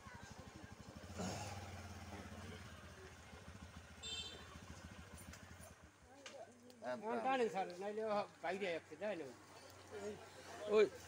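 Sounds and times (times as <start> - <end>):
small engine puttering: 0.2 - 5.9.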